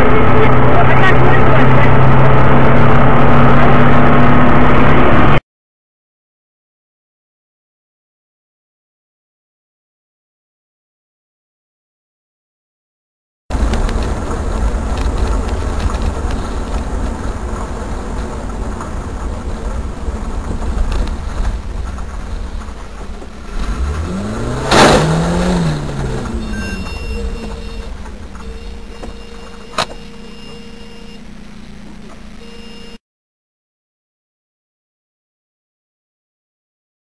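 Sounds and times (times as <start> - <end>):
vehicle engine and road noise: 0.0 - 5.4, 13.5 - 33.0
rising and falling tone: 23.5 - 33.0
loud crash-like bang: 24.6 - 25.7
steady tone: 25.1 - 33.0.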